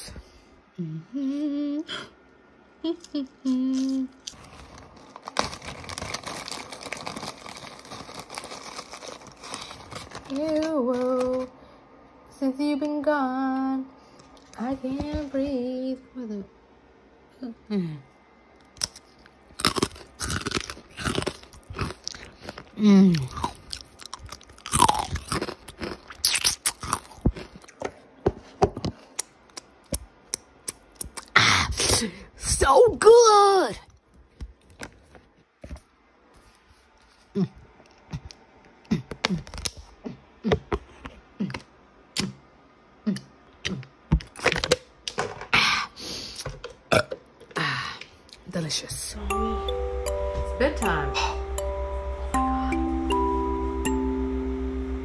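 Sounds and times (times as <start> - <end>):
person humming: 0.7 - 2.2, 2.8 - 4.2, 49.2 - 55.0
crunchy food chewing: 3.0 - 11.5, 18.6 - 27.9
plastic bottle crackling: 4.3 - 11.5.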